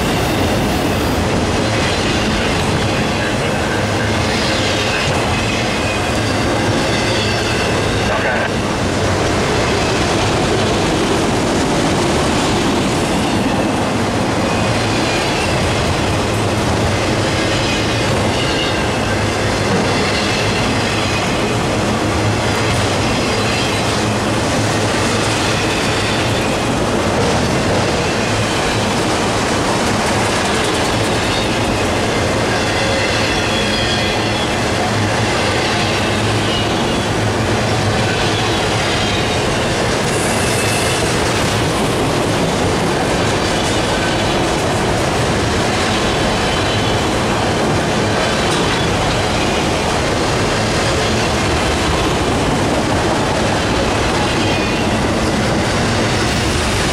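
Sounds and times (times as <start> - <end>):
steel wheels rumbling on rail: 0.0 - 56.9
high wheel squeals: 38.0 - 41.2.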